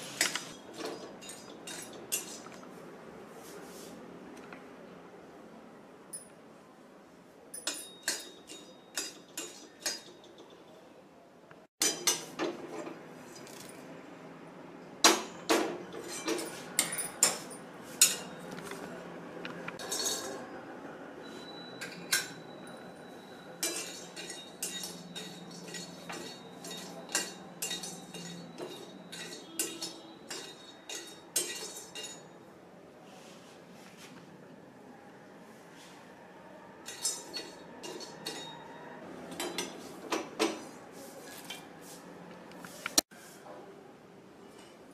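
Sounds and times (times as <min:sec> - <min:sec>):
spices clinking in steel pan: 0:07.5 - 0:10.6, 0:23.6 - 0:32.4, 0:36.8 - 0:38.7.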